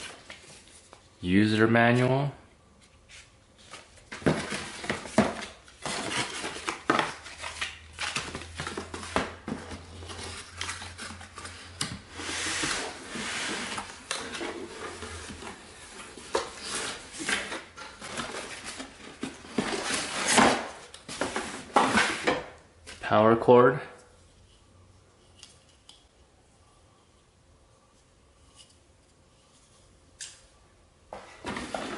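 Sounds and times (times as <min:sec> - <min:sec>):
cardboard scraping and rustling: 0:03.1 - 0:22.5, 0:31.2 - 0:31.9.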